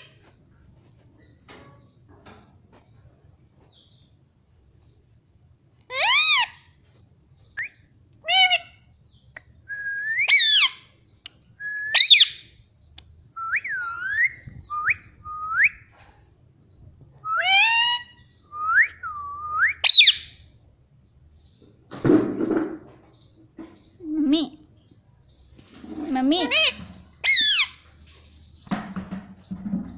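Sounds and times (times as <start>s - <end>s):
parakeet whistled calls: 11.7s - 12.4s, 17.3s - 20.3s.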